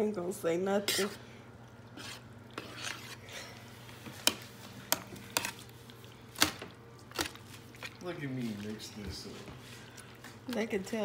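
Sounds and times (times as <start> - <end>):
utensil scraping a bowl: 0.8 - 1.2, 1.9 - 3.5.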